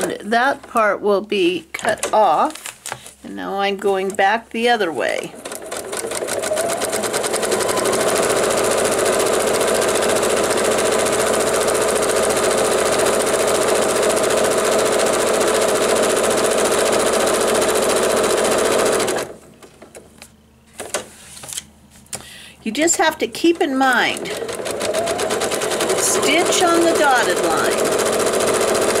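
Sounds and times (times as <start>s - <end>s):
sewing machine stitching: 4.9s - 19.4s, 23.4s - 29.0s.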